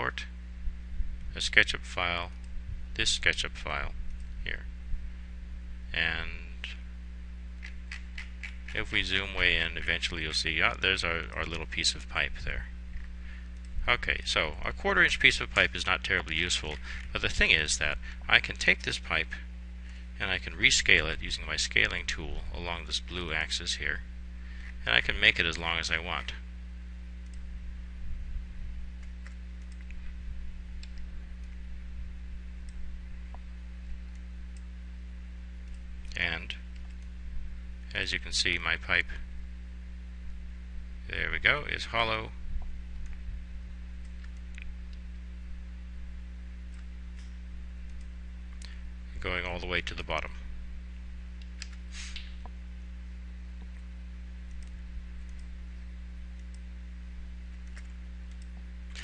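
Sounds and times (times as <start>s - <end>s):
low electrical hum: 0.0s - 59.0s
computer mouse clicks: 29.0s - 30.0s, 54.5s - 55.5s, 57.5s - 59.0s
short soft hiss: 51.8s - 52.4s.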